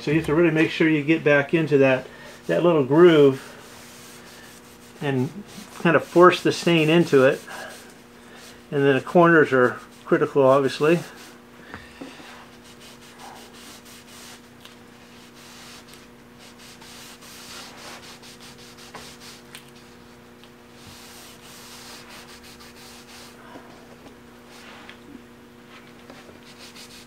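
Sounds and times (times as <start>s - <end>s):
rag rubbing on wood: 1.7s - 11.4s, 12.0s - 19.9s, 20.8s - 23.4s, 26.2s - 27.0s.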